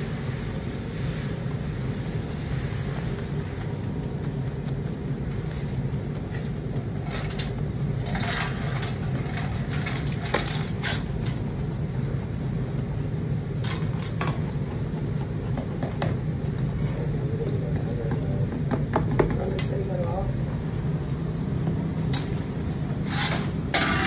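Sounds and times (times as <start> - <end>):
boiling sugar syrup rumble: 0.0 - 24.0
wooden paddle scraping metal pan: 5.5 - 11.5, 22.9 - 24.0.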